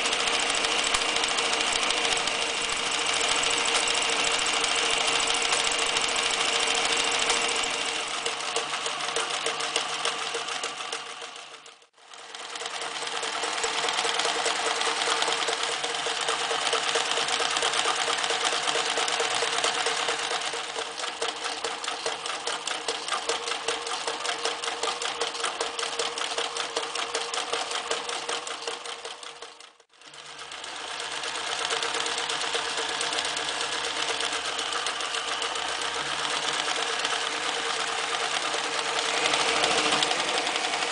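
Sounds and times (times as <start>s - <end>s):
sewing machine motor hum: 0.0s - 40.9s
sewing machine needle chatter: 0.0s - 40.9s.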